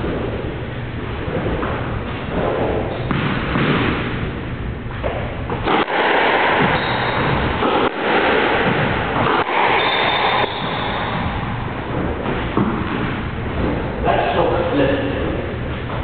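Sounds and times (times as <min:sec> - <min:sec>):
squash ball cracking off rackets: 0:01.2 - 0:04.4, 0:05.0 - 0:14.0
shoes squeaking on court floor: 0:06.6 - 0:07.8, 0:09.4 - 0:14.4.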